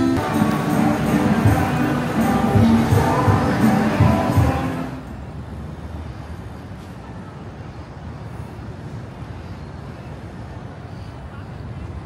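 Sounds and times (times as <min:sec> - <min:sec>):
music: 0:00.0 - 0:05.0
rumble of passing traffic: 0:00.0 - 0:12.0.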